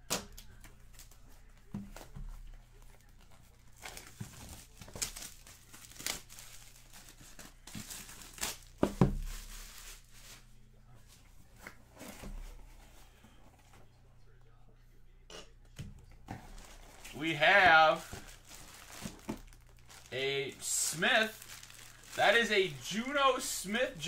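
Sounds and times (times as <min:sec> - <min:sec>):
plastic wrapping crinkling: 0:03.0 - 0:10.6, 0:16.4 - 0:24.0.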